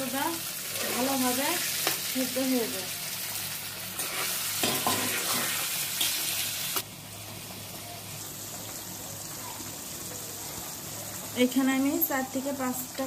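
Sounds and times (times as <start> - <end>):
curry sizzling in a pan: 0.0 - 13.0.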